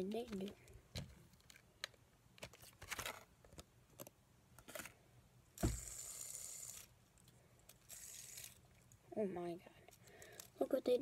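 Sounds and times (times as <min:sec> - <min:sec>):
plastic packaging crinkling: 0:02.4 - 0:03.3
thump: 0:05.6 - 0:05.9
fidget spinner whirring: 0:05.6 - 0:06.9, 0:07.7 - 0:08.6.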